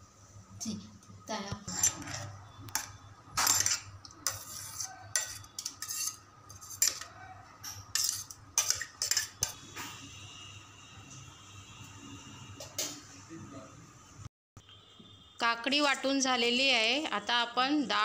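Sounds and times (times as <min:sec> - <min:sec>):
spoon scraping in steel jar: 0:01.6 - 0:09.6.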